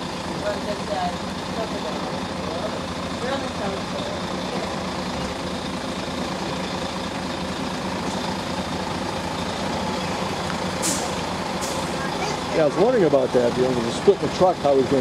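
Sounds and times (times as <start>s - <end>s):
diesel truck engine running: 0.0s - 15.0s
short hiss: 10.8s - 11.8s.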